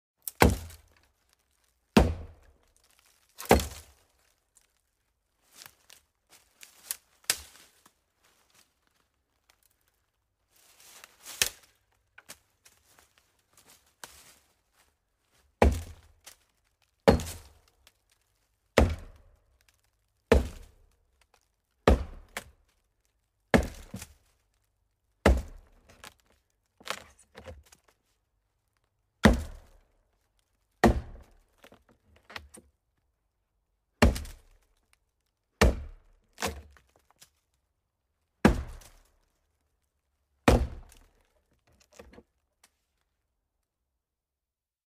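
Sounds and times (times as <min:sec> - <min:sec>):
axe chopping wood: 0:00.2 - 0:00.9, 0:02.0 - 0:02.5, 0:03.4 - 0:03.9, 0:15.6 - 0:16.2, 0:17.0 - 0:17.6, 0:18.8 - 0:19.2, 0:20.3 - 0:20.7, 0:21.8 - 0:22.5, 0:23.5 - 0:24.1, 0:25.2 - 0:25.8, 0:29.2 - 0:29.8, 0:30.8 - 0:31.4, 0:34.0 - 0:34.6, 0:35.6 - 0:36.8, 0:38.4 - 0:39.1, 0:40.4 - 0:41.2.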